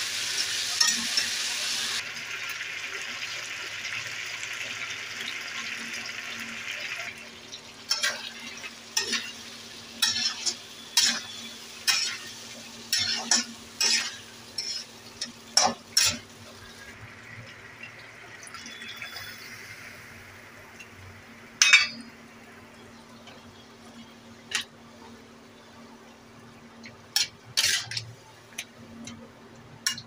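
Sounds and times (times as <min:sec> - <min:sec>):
soft hiss from pan: 0:00.0 - 0:04.6, 0:07.8 - 0:17.2
spatula scraping a pan: 0:10.0 - 0:16.3, 0:27.2 - 0:28.0.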